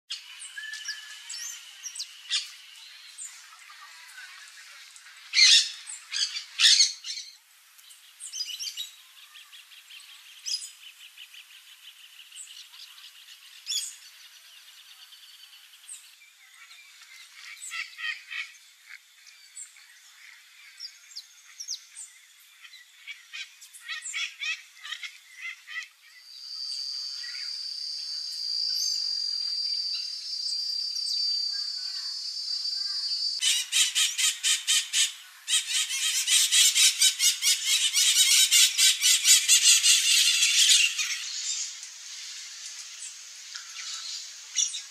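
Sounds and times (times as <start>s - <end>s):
soft bird calls and trills: 0.1s - 44.9s
macaw calls: 32.9s - 41.8s
rapid parakeet screeching: 33.4s - 41.2s.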